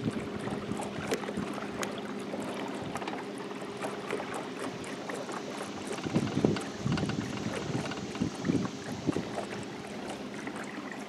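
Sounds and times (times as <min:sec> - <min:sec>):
wind buffeting microphone: 0:00.0 - 0:01.8, 0:05.5 - 0:10.2
water noise: 0:00.0 - 0:11.0
electric trolling motor humming: 0:01.7 - 0:11.0.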